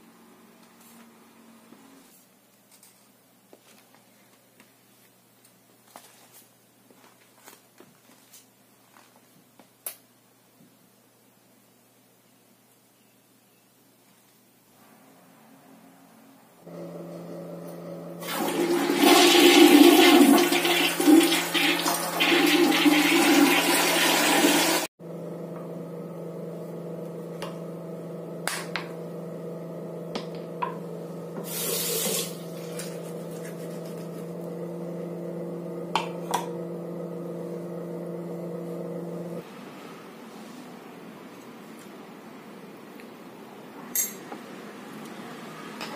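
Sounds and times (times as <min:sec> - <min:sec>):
toilet flushing: 0:18.1 - 0:24.9, 0:31.3 - 0:37.0.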